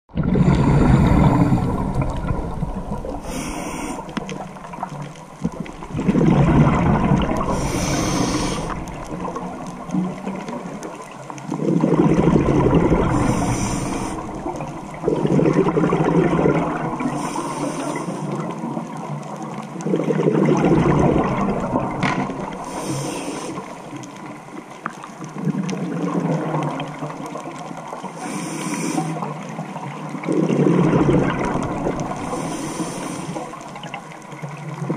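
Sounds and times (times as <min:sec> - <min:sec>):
exhaled bubbles rumbling: 0:00.1 - 0:28.1, 0:29.2 - 0:34.9
regulator hissing inhale: 0:03.2 - 0:04.7, 0:07.5 - 0:09.0, 0:13.1 - 0:14.6, 0:17.1 - 0:18.4, 0:22.6 - 0:23.8, 0:28.2 - 0:29.2, 0:32.2 - 0:33.6.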